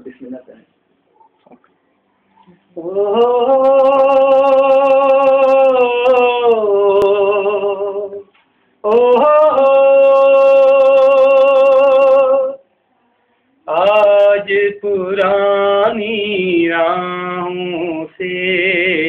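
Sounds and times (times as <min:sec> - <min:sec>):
man singing unaccompanied: 0:02.8 - 0:12.6, 0:13.6 - 0:19.0.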